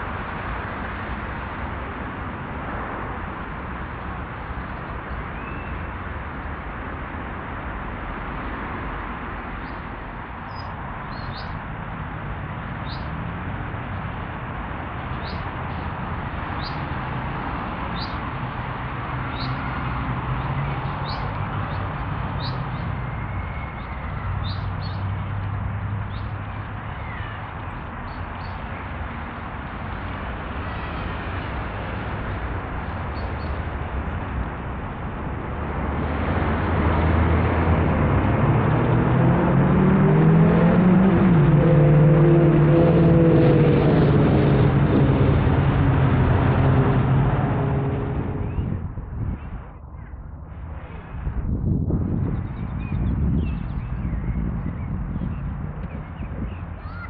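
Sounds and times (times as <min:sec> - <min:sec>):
outdoor rumble and hiss: 0:00.0 - 0:57.0
small bird chirping: 0:10.5 - 0:11.6, 0:20.6 - 0:22.8.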